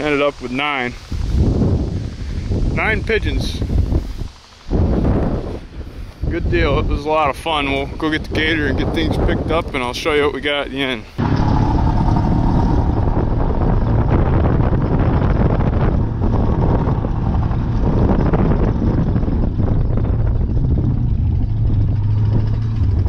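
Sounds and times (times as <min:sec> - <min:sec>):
wind buffeting microphone: 0:00.0 - 0:23.0
utility vehicle engine running: 0:11.1 - 0:23.0.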